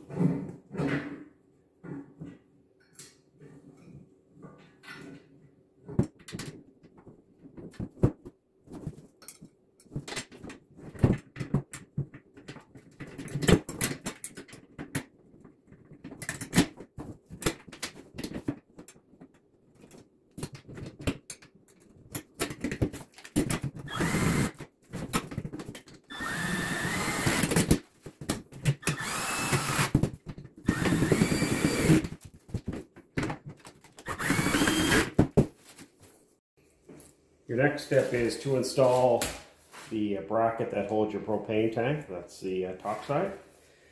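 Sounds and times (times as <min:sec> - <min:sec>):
cordless drill driving screws: 0:23.9 - 0:24.5, 0:26.1 - 0:27.6, 0:28.8 - 0:30.0, 0:30.6 - 0:32.0, 0:34.0 - 0:35.2.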